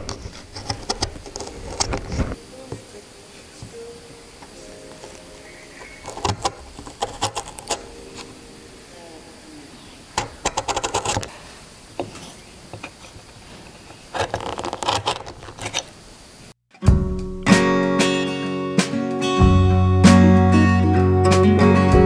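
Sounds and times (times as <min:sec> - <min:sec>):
chisel paring wood crackling: 0:00.0 - 0:02.8, 0:04.4 - 0:08.3, 0:10.2 - 0:11.3, 0:12.0 - 0:16.0.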